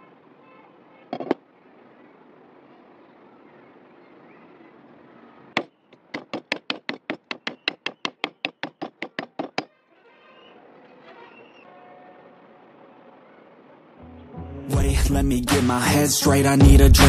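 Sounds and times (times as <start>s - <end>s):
cleaver chopping wood: 5.6s - 9.7s.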